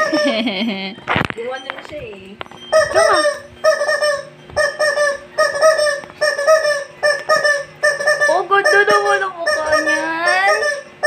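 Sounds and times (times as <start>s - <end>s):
high-pitched squeaks: 2.5s - 11.0s.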